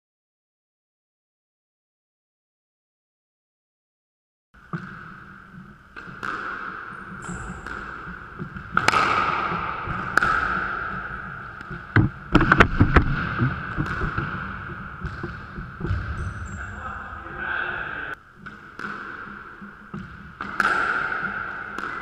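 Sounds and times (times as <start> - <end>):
squash ball cracking off rackets: 5.9 - 16.2, 18.4 - 22.0.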